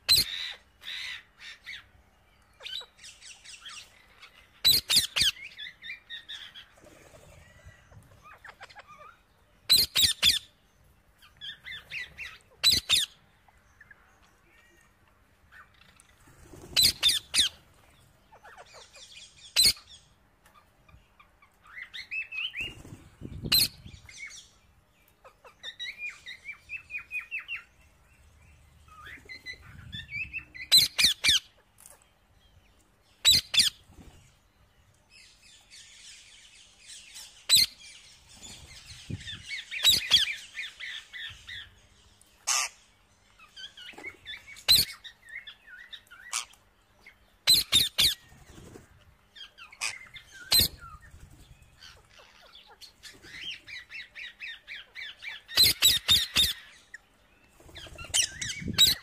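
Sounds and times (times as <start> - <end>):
parakeets screeching: 0.1 - 1.9, 2.6 - 10.5, 11.5 - 13.2, 15.5 - 19.9, 39.4 - 41.6, 42.4 - 42.8, 43.4 - 46.6, 47.4 - 48.8, 49.4 - 57.0, 57.7 - 59.0
parakeets twittering: 0.1 - 1.9, 2.6 - 10.5, 11.2 - 14.1, 15.5 - 24.5, 25.2 - 31.9, 35.8 - 41.8, 42.4 - 59.0.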